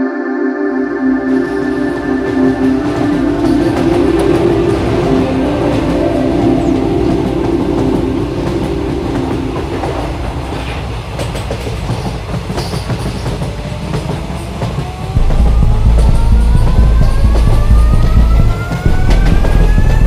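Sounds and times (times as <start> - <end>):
slowly rising tones: 0.0 - 11.0, 15.0 - 20.0
train wheels rattling over rails: 2.3 - 20.0
loud low rumble: 15.2 - 20.0.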